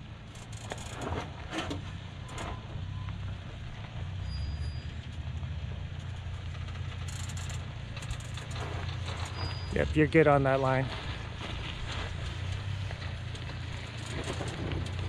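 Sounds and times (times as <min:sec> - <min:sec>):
truck engine low rumble: 0:00.0 - 0:15.0
tyres crunching on gravel: 0:06.0 - 0:15.0.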